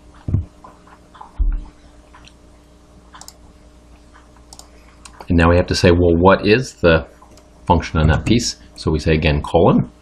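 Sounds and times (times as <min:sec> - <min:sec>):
faint steady hum: 0:00.0 - 0:10.0
dull low thumps: 0:01.4 - 0:01.8
computer mouse clicks: 0:03.1 - 0:03.4, 0:04.1 - 0:05.3, 0:07.2 - 0:07.5.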